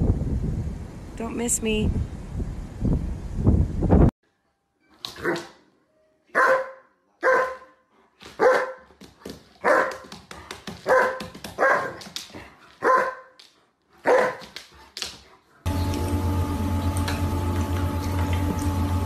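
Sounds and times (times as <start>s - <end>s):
dog barking: 6.3s - 7.8s, 8.4s - 8.9s, 9.6s - 10.1s, 10.8s - 12.0s, 12.8s - 13.4s, 14.0s - 14.5s.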